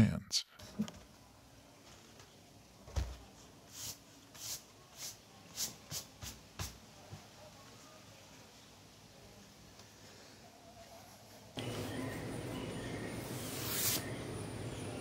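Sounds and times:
hissy brushing across a surface: 3.7s - 6.8s, 13.2s - 14.3s.

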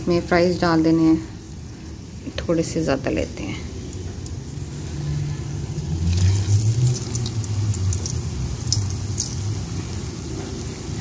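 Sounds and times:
potatoes sizzling in hot oil: 0.0s - 11.0s
oil crackles: 3.3s - 11.0s.

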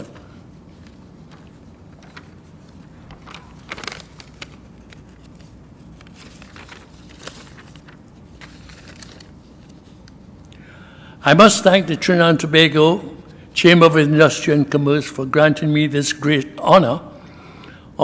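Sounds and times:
paper rustling and shuffling: 0.0s - 10.3s
low steady hum: 0.0s - 18.0s.

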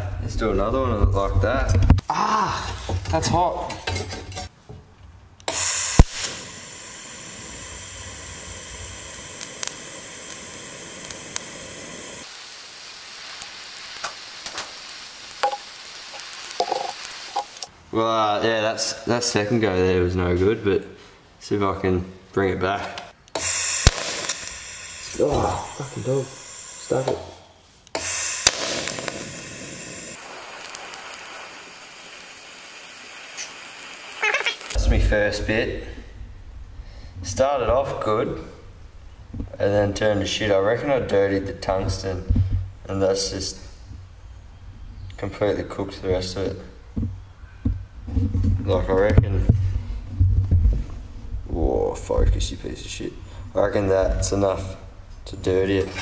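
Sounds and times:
welder arc strike click: 5.4s - 6.6s, 23.3s - 27.3s, 27.9s - 32.3s
welding arc hissing: 5.5s - 17.7s, 23.3s - 34.8s.

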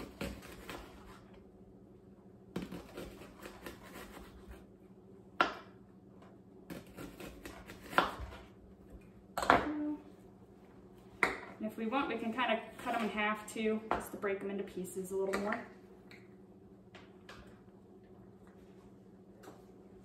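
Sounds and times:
knife slicing on cutting board: 2.6s - 4.6s.

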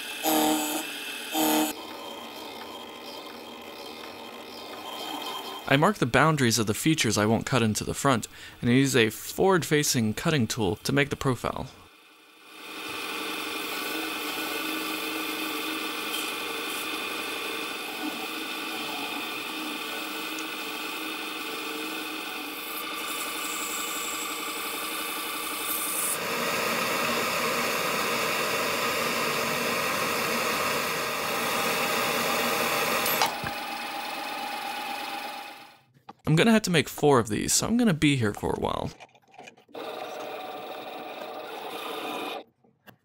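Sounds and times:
lathe motor whining: 0.0s - 5.7s, 12.0s - 35.8s, 39.8s - 42.4s
lathe cutting spinning metal: 12.2s - 35.7s.

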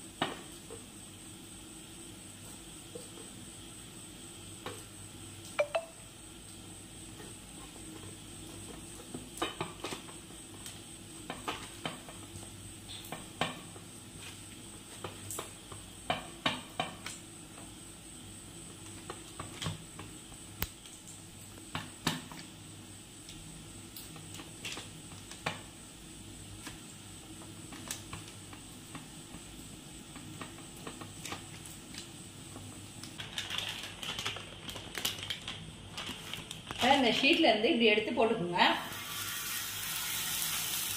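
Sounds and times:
plastic sheet crinkling: 33.2s - 37.4s.

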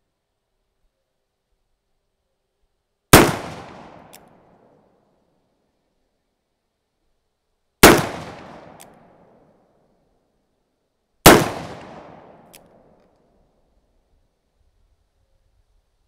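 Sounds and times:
revolver gunshots with echo: 3.1s - 4.2s, 7.8s - 9.1s, 11.2s - 12.6s.

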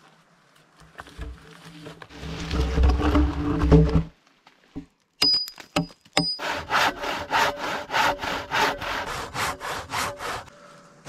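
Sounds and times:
hand saw cutting through log: 6.3s - 10.6s.

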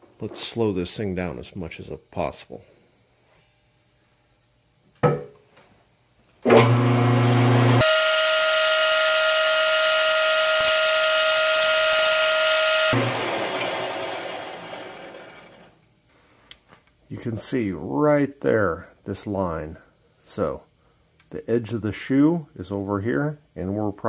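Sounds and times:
lathe motor hum: 6.6s - 15.7s
high-pitched ring of cutting tool: 7.8s - 13.0s.

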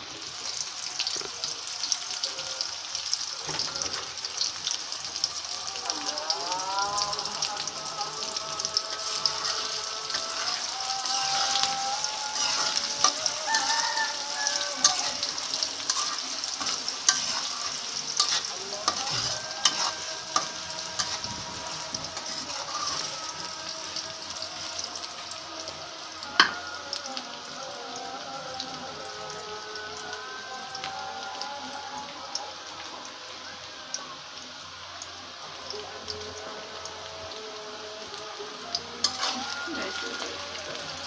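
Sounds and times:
onions sizzling in hot oil: 0.0s - 41.0s
metal spatula scraping pan: 12.3s - 13.4s, 14.8s - 23.2s.

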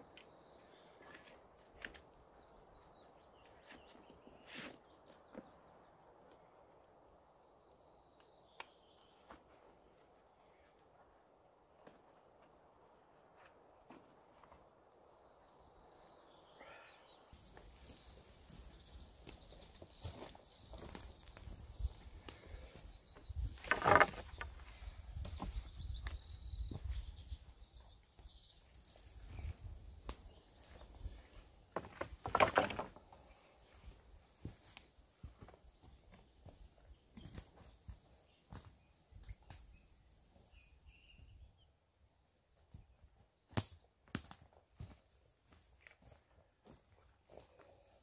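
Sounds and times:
twigs clicking and knocking underfoot: 0.0s - 16.5s, 17.4s - 39.8s, 42.6s - 47.7s
birds chirping faintly: 0.0s - 48.0s
wooden poles clattering on ground: 23.4s - 24.6s, 31.7s - 33.2s.

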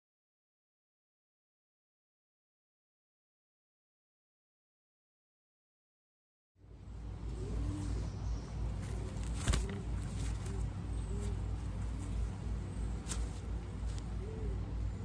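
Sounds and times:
steady low rumble: 6.6s - 15.0s
pigeons cooing: 6.7s - 15.0s.

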